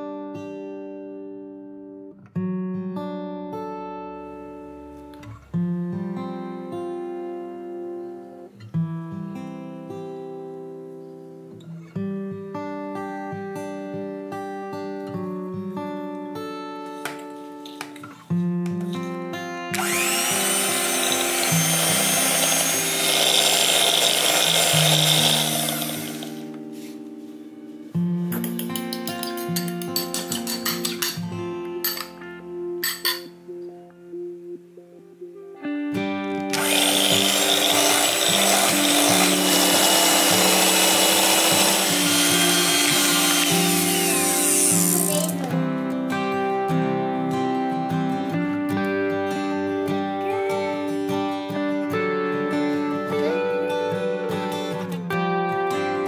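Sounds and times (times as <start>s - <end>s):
acoustic guitar music: 0.0s - 56.0s
electric hand mixer whine: 19.7s - 26.5s, 36.5s - 45.4s.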